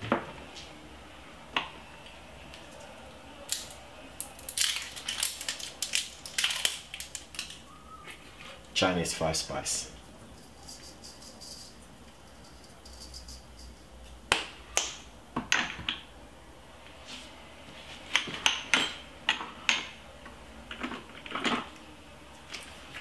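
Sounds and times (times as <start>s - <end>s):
spice shaking hiss: 10.4s - 13.9s.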